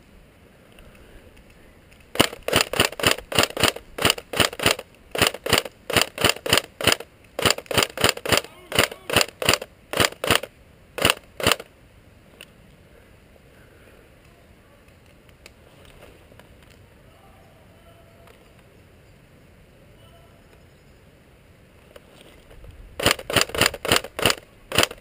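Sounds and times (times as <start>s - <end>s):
airsoft gun shots: 2.1s - 11.7s, 23.0s - 25.0s.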